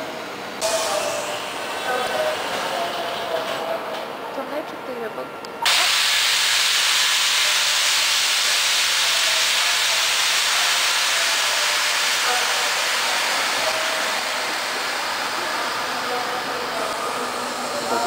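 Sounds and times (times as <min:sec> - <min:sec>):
compressed air hissing: 0:05.7 - 0:18.0.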